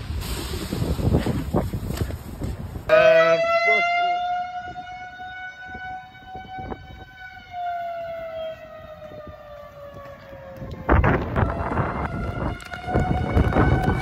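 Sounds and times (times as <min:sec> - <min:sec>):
wind gusting on microphone: 0:00.0 - 0:14.0
warning siren wailing: 0:02.9 - 0:14.0.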